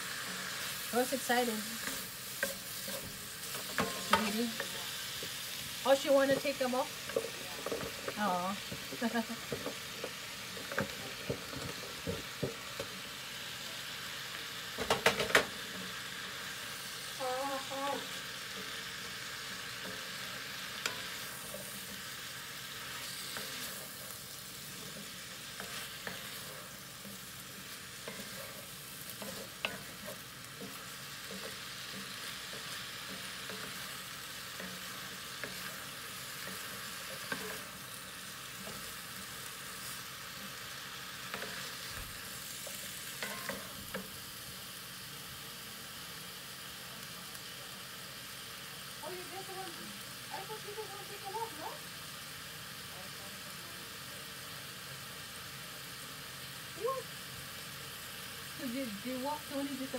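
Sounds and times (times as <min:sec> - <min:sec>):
food sizzling in a skillet: 0:00.0 - 0:59.9
spatula scraping and knocking pan: 0:01.7 - 0:05.5, 0:06.2 - 0:12.9, 0:18.5 - 0:44.1.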